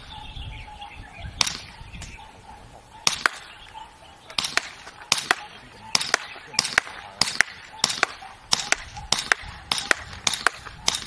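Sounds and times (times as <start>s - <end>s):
wind buffeting microphone: 0.0s - 11.0s
airsoft pistol shots: 1.4s - 1.7s, 3.0s - 3.6s, 4.3s - 11.0s.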